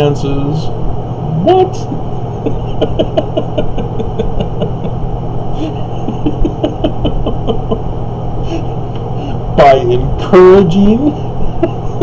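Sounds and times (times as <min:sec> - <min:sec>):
steady low hum: 0:00.0 - 0:12.0
man laughing: 0:01.9 - 0:09.6, 0:10.9 - 0:12.0.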